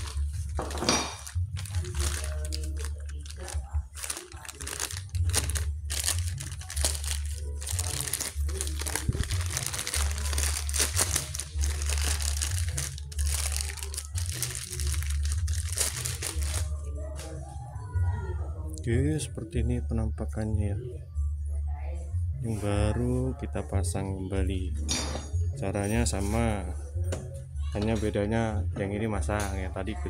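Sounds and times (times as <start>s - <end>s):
plastic bag crinkling: 0.0s - 16.8s.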